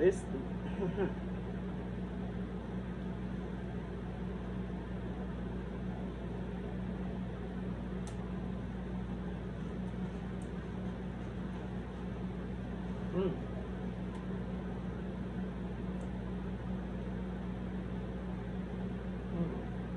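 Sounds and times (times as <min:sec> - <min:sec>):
low machine hum: 0:00.0 - 0:19.9
light click: 0:08.0 - 0:08.2.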